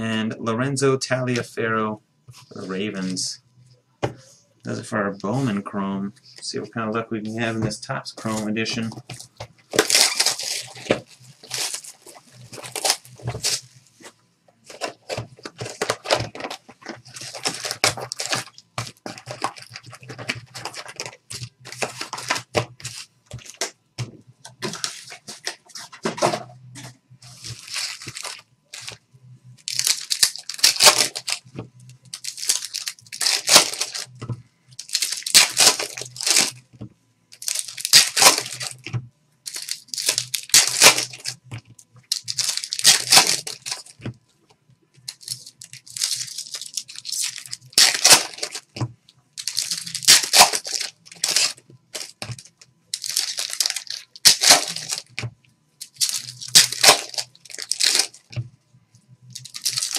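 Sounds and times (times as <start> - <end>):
foil wrappers tearing and crinkling: 9.7 - 13.7, 14.7 - 23.7, 27.3 - 29.0, 29.6 - 34.2, 34.8 - 36.6, 37.3 - 38.8, 39.4 - 41.4, 42.0 - 44.0, 45.0 - 48.8, 49.4 - 55.2, 55.8 - 58.4, 59.3 - 59.9.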